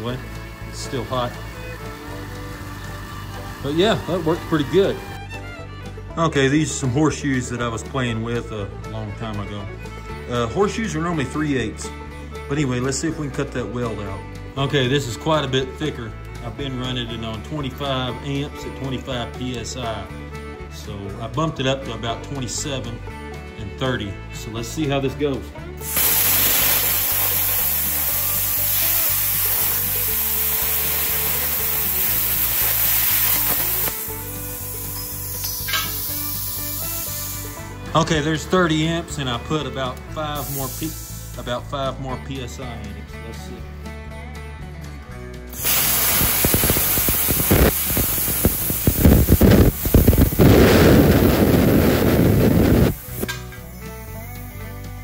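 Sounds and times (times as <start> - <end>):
plasma cutter hissing: 25.8 - 37.7, 40.4 - 41.4, 45.5 - 54.8.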